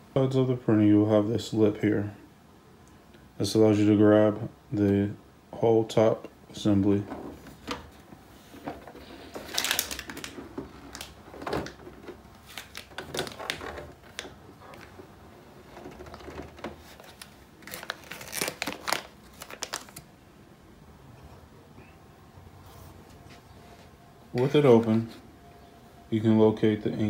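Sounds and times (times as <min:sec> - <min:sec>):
plastic printer clicks and rattles: 0:09.5 - 0:15.0.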